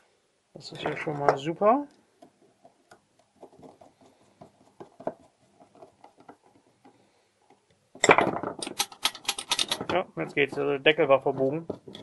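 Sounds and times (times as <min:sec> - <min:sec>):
rapid metallic clicks and rattles: 0:02.2 - 0:10.6
lock clicks and scrapes: 0:02.3 - 0:10.0.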